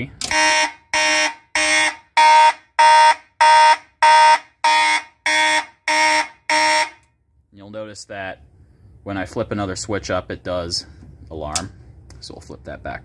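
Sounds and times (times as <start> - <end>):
fire alarm horn blasts: 0.2 - 7.2.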